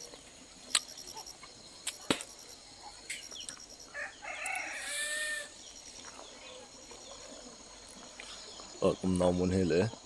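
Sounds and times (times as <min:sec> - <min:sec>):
sharp click: 0:00.7 - 0:01.0
rooster crowing: 0:03.9 - 0:05.6.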